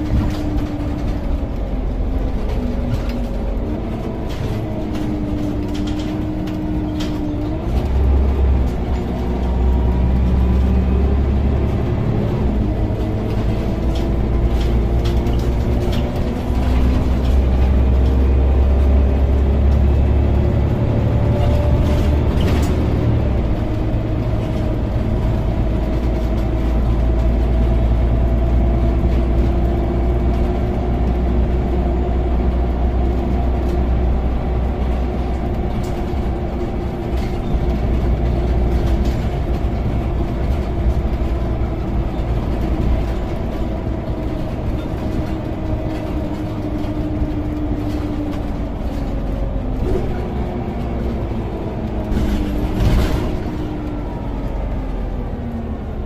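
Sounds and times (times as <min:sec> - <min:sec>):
bus engine rumble: 0:00.0 - 0:56.0.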